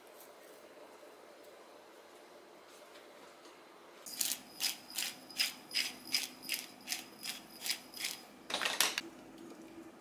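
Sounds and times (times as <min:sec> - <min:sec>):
hand seed grinder crunching: 0:04.1 - 0:08.2.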